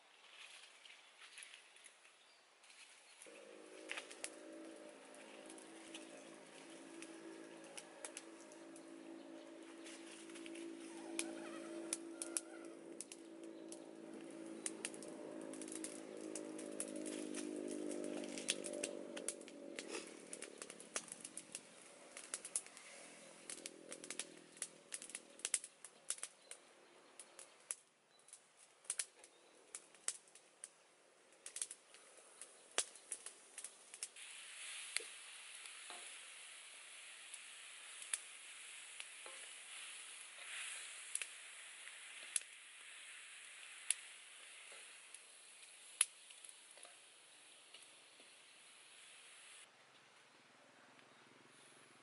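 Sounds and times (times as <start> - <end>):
leaves sizzling in a wok: 2.7 - 26.5, 31.4 - 49.7
wood fire crackling and popping: 3.2 - 49.7
steady low drone: 3.3 - 25.5.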